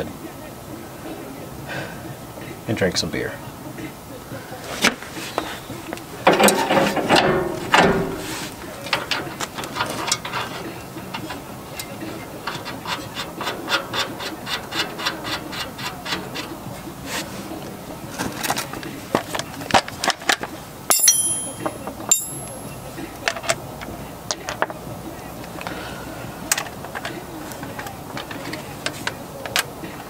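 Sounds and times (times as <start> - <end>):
ringing metallic clinks: 20.9 - 22.9.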